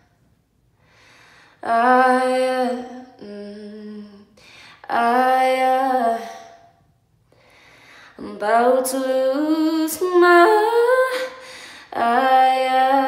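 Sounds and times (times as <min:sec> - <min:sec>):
woman singing a cappella: 0:01.5 - 0:06.8, 0:08.1 - 0:13.0.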